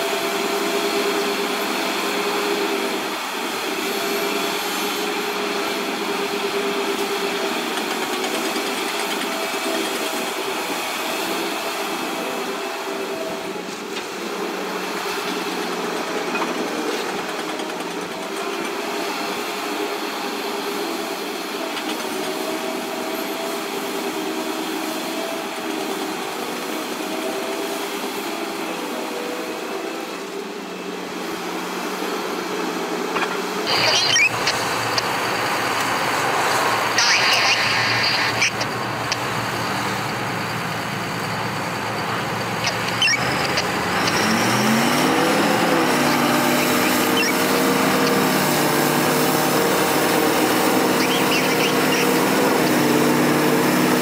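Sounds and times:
bulldozer engine revving: 0.0s - 54.0s
excavator engine humming: 0.0s - 54.0s
bulldozer clanks and squeal: 3.8s - 14.2s, 14.9s - 19.4s, 33.0s - 54.0s.

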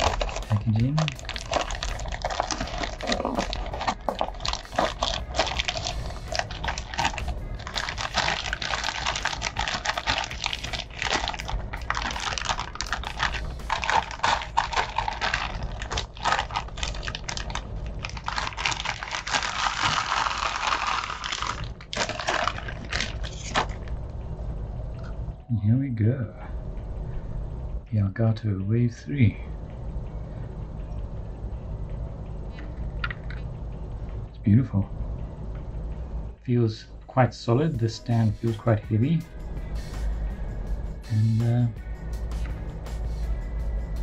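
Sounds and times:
plastic wrapping crinkling: 0.0s - 23.9s.

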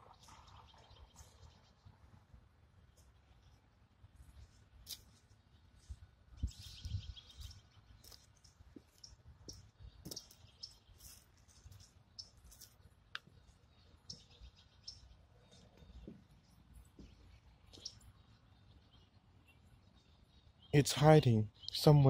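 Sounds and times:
footsteps crunching through dry leaves: 7.3s - 12.9s.

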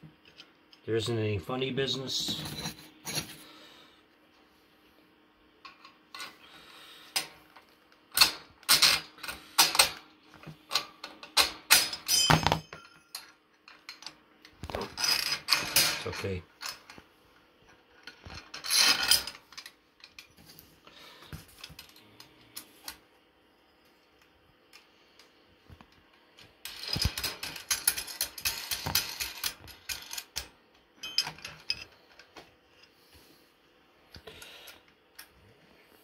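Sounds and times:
metal parts clicking and clattering: 7.1s - 17.0s, 18.0s - 20.4s, 26.4s - 32.4s.

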